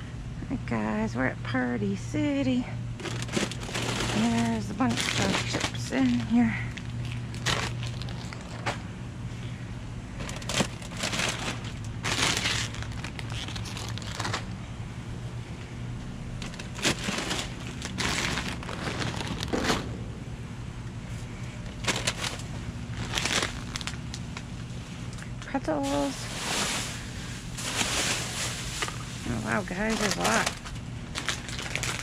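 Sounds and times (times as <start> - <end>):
steady low hum: 0.0 - 32.0
plastic bags crinkling: 3.0 - 8.8, 10.2 - 14.6, 16.4 - 19.9, 21.5 - 24.7, 25.8 - 32.0.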